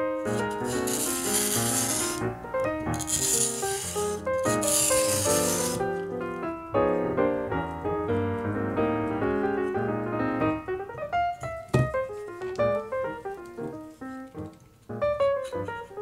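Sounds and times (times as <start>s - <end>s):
light piano music: 0.0s - 16.0s
sharp scrape or knock: 0.3s - 2.3s, 2.9s - 5.9s.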